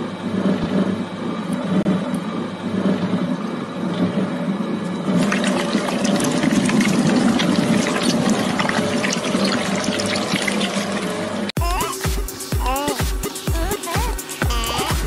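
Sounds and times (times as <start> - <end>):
shredder machine drone: 0.0 - 12.6.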